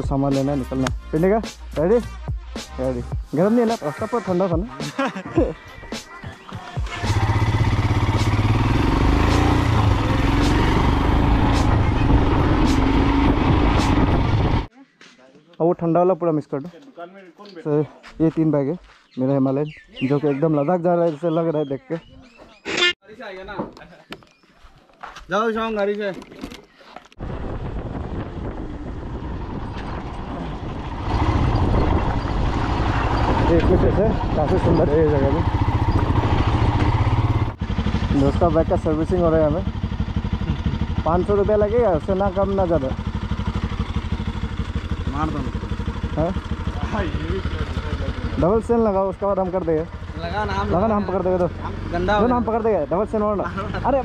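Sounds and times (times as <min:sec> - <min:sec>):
motorcycle engine accelerating: 0:06.8 - 0:14.7, 0:27.2 - 0:54.0
wind and road noise: 0:06.8 - 0:14.7, 0:25.0 - 0:54.0.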